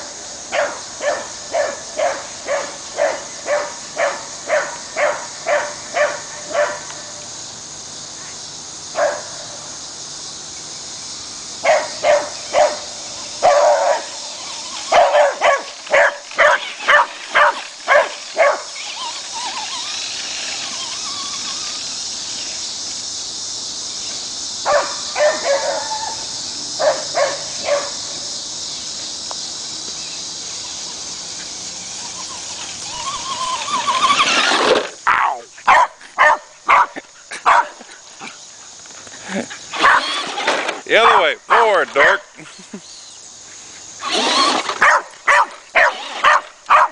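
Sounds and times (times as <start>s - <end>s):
dog barking: 0.5s - 6.8s, 9.0s - 9.3s, 11.6s - 12.8s, 13.4s - 14.1s, 14.9s - 18.7s, 24.7s - 25.9s, 26.8s - 28.0s, 35.7s - 37.8s, 39.8s - 40.1s, 44.8s - 46.9s.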